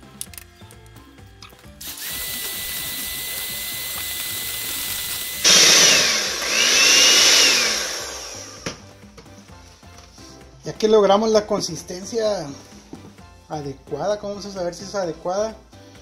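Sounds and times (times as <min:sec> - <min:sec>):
electric hand mixer whining: 0:01.8 - 0:08.8.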